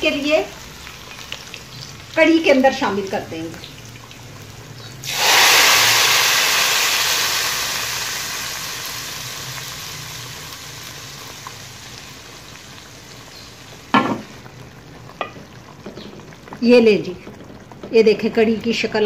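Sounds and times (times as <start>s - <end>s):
hot oil sizzling in curry: 0.0s - 19.0s.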